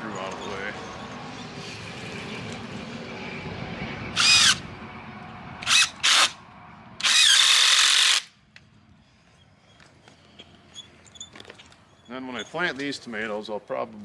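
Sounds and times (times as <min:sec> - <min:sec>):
cordless drill motor whine: 0:04.1 - 0:04.6, 0:05.6 - 0:06.3, 0:07.0 - 0:08.3.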